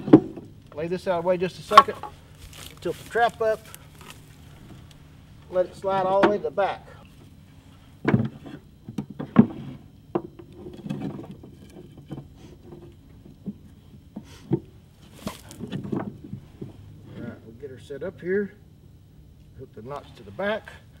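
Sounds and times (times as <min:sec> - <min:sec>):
scuffing rustle: 0:01.7 - 0:05.5, 0:15.0 - 0:15.6.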